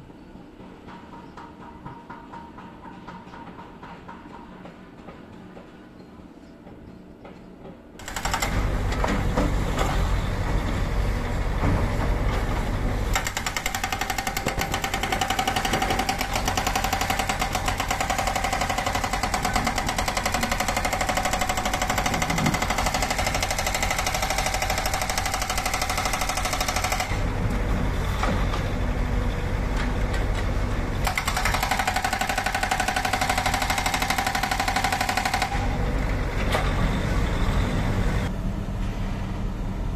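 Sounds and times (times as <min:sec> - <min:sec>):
diesel engine: 0:08.0 - 0:39.9
hydraulic rock breaker hammering: 0:13.1 - 0:27.3, 0:31.0 - 0:35.8.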